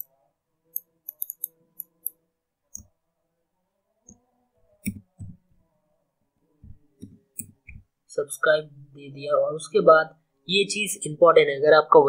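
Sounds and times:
faint background music: 0:00.0 - 0:12.0
mouse clicks: 0:00.7 - 0:02.9, 0:04.8 - 0:05.3.

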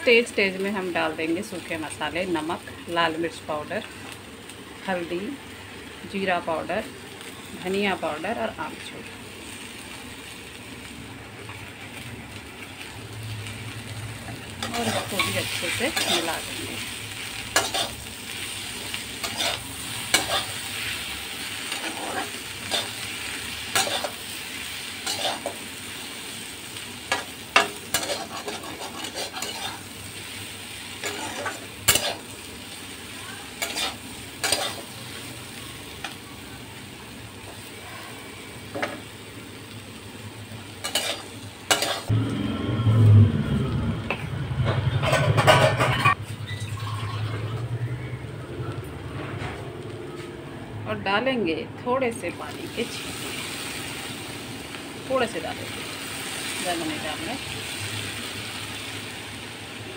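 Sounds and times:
food sizzling in oil: 0:00.0 - 0:42.2, 0:45.4 - 0:49.1, 0:52.0 - 0:59.9
spatula scraping pan: 0:14.6 - 0:16.9, 0:17.5 - 0:18.1, 0:19.2 - 0:24.2, 0:25.0 - 0:25.6, 0:27.1 - 0:29.9, 0:31.0 - 0:32.3, 0:33.6 - 0:34.9, 0:40.8 - 0:42.1
low rumble: 0:42.1 - 0:50.9.

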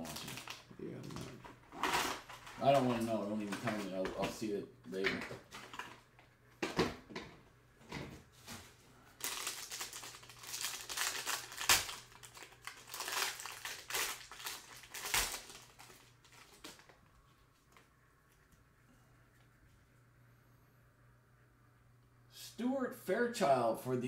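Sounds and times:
foil wrapper crinkling: 0:00.0 - 0:00.7, 0:09.1 - 0:17.0.

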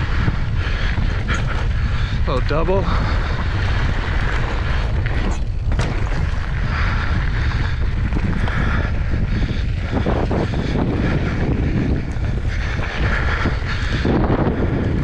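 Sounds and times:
bike rattling over bumps: 0:00.0 - 0:15.0
bike tyres rolling over dirt: 0:00.0 - 0:15.0
wind buffeting microphone: 0:00.0 - 0:15.0.

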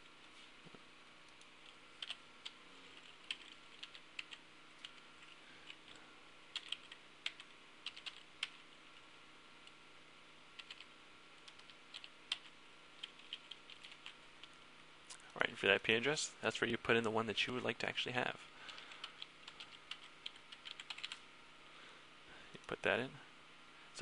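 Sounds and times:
faint computer keyboard typing: 0:01.3 - 0:08.7, 0:10.6 - 0:14.6, 0:18.6 - 0:21.2.

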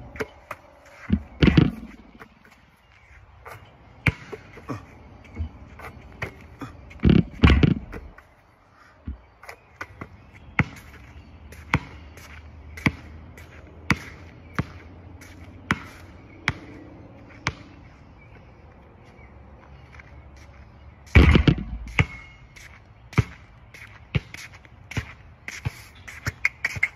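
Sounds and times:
basketball hitting hoop and court: 0:01.1 - 0:02.3, 0:04.0 - 0:04.6, 0:07.0 - 0:08.1, 0:11.7 - 0:12.0, 0:17.4 - 0:17.7, 0:21.1 - 0:22.4.

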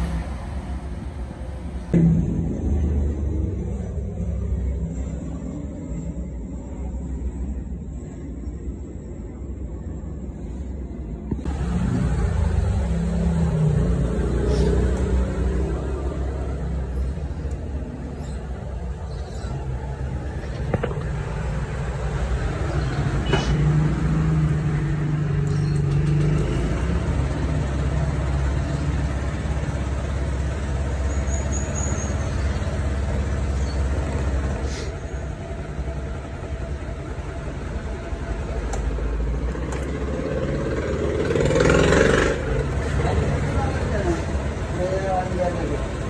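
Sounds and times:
scooter engine idling: 0:26.6 - 0:46.0.

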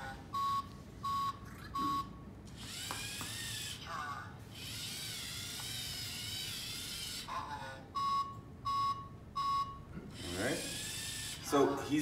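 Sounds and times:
short electronic beeps: 0:00.4 - 0:02.3, 0:08.0 - 0:09.9
electric motors whirring: 0:02.4 - 0:07.9, 0:10.0 - 0:12.0.

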